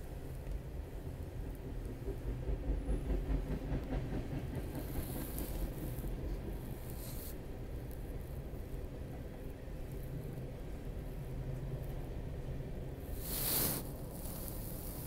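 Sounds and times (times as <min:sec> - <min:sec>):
train rumbling by: 0:00.0 - 0:15.0.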